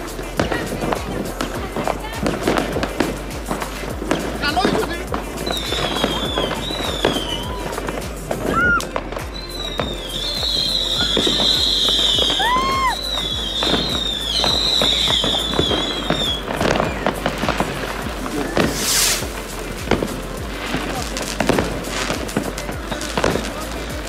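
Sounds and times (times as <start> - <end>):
firework fountain whistling: 0.0 - 24.0
fireworks banging and crackling: 0.0 - 24.0
short swooping whistles: 5.4 - 17.6.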